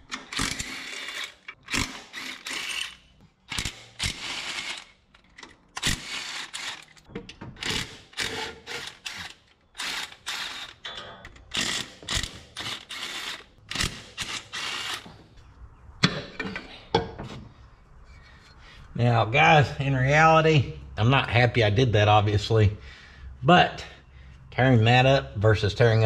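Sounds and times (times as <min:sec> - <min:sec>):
ratchet wrench clicking: 0:00.1 - 0:10.8.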